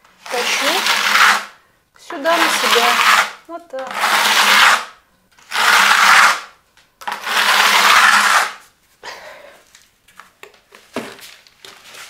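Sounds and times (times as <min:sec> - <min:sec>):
trowel scraping plaster on wall: 0:00.2 - 0:01.6, 0:02.2 - 0:08.7.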